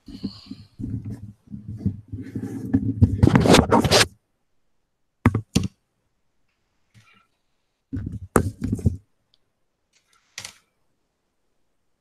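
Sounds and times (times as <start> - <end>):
headset microphone handling noise: 0.0 - 4.1, 7.9 - 9.0.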